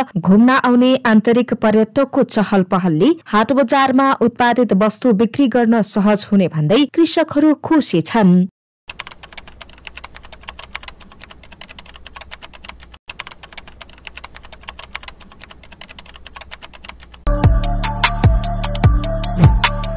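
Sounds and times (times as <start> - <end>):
computer keyboard typing clicks: 8.9 - 17.3
loud electronic music with beat: 17.3 - 19.9.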